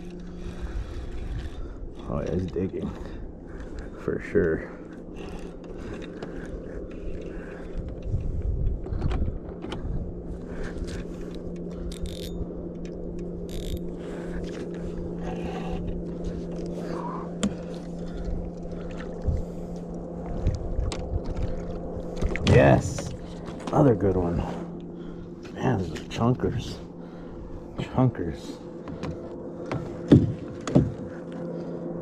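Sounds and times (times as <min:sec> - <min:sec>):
small boat motor humming: 0:00.0 - 0:32.0
knocks against hull: 0:28.9 - 0:31.1.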